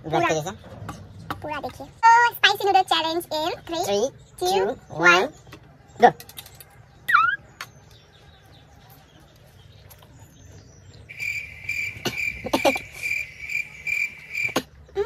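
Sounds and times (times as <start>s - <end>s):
high chirping trill: 7.1s - 7.5s, 11.1s - 14.6s
people eating noodles: 11.9s - 15.0s.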